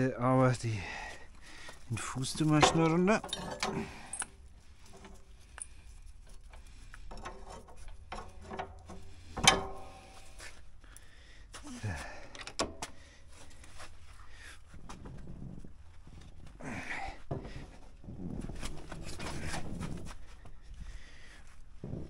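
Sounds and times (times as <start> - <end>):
clanks and knocks of steel drawbar: 2.0 - 5.2, 6.5 - 10.5.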